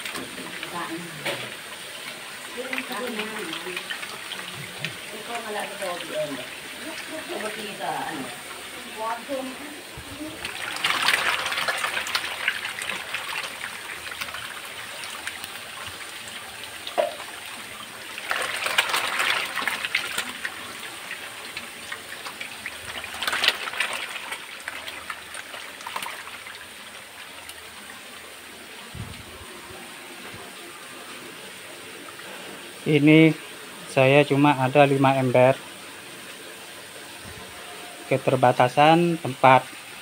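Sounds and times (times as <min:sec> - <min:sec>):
fish thrashing and splashing: 0:00.0 - 0:30.2
light water noise: 0:00.0 - 0:40.0.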